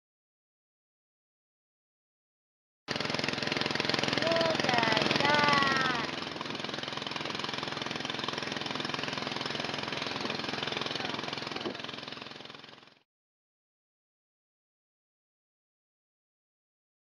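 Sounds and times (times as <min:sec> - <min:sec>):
small boat motor running: 0:02.9 - 0:13.0.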